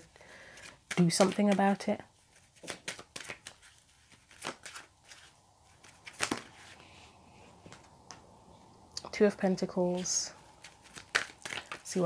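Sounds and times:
cards being shuffled: 0:00.5 - 0:06.8, 0:09.9 - 0:12.0
card slap: 0:06.0 - 0:06.5, 0:10.8 - 0:12.0.

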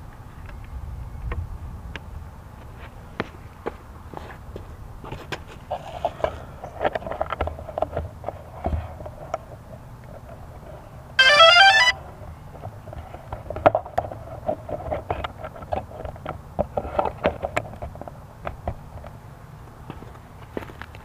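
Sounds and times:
electronic jingle of rising beeps: 0:11.2 - 0:12.0
light ticks and scuffs: 0:19.8 - 0:21.0.

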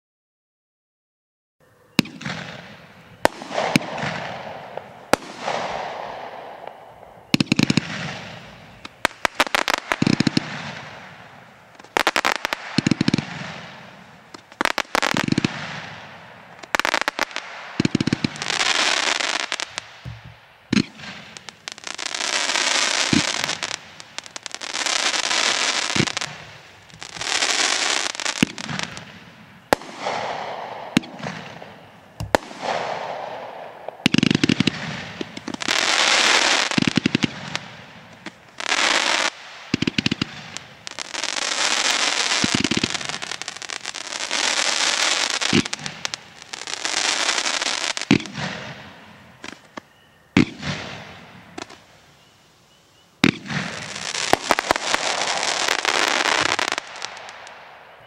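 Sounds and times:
firework crackling: 0:02.0 - 0:52.1, 0:53.2 - 0:58.0
firework launch thumps: 0:19.7 - 0:21.4, 0:32.2 - 0:32.9.

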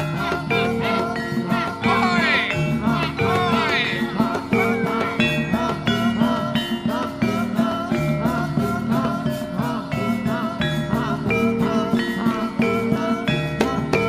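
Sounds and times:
gamelan music: 0:00.0 - 0:14.0.

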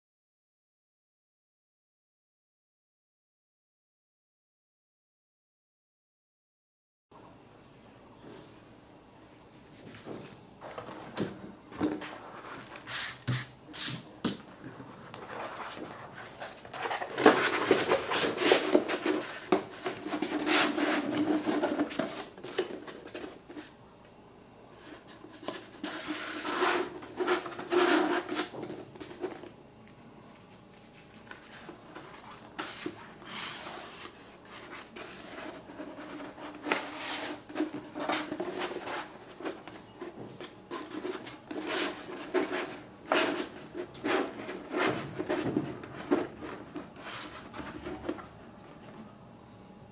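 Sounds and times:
paper rustling: 0:14.8 - 0:23.7, 0:30.3 - 0:48.2.

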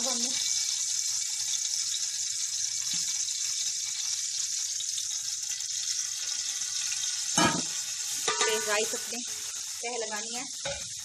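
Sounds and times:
oil sizzling in a pot: 0:00.0 - 0:11.0.

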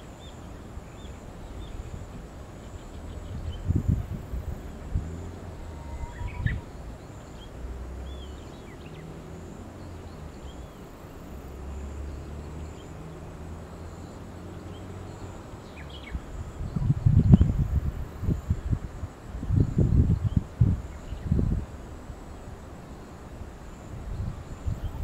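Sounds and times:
low steady rumble: 0:00.0 - 0:25.0
faint high bird chirps: 0:05.6 - 0:09.1.

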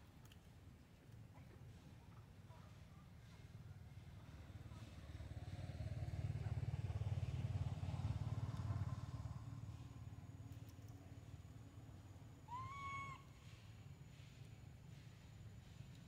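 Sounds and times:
vehicle engine hum passing: 0:03.8 - 0:12.4.

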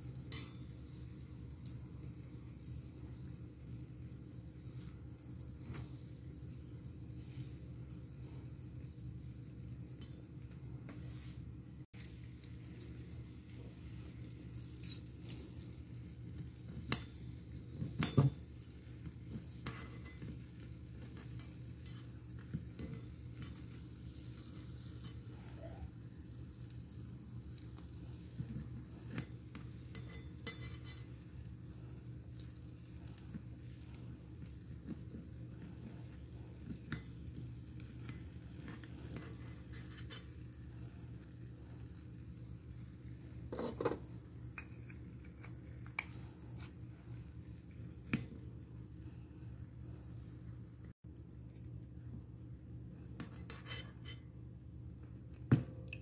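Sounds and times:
oil sizzling: 0:00.0 - 0:51.0
metal spoon clinking on pan: 0:00.2 - 0:00.8, 0:29.8 - 0:31.2.

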